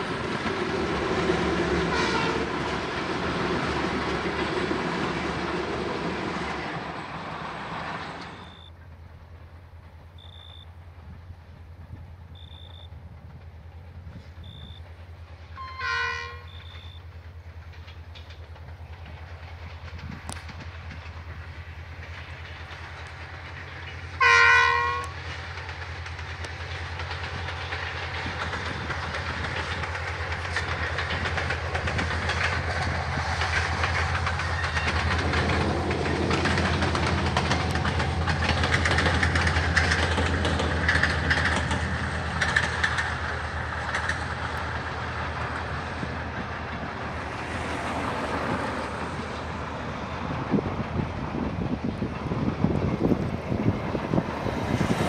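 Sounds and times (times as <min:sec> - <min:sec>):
locomotive engine hum: 0:00.0 - 0:55.0
train wheels on rails: 0:00.0 - 0:55.0
train horn blasts: 0:01.9 - 0:02.6, 0:15.6 - 0:17.0, 0:24.2 - 0:25.2.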